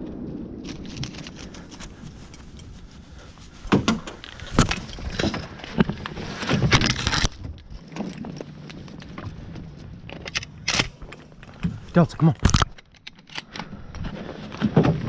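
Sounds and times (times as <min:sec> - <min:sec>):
rustling of brush and branches: 0:00.0 - 0:15.0.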